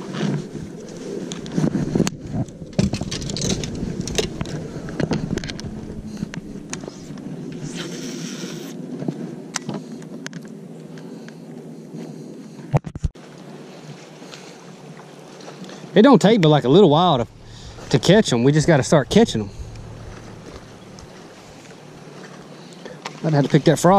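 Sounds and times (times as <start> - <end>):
low rumble: 0.0 - 8.2, 16.4 - 22.8.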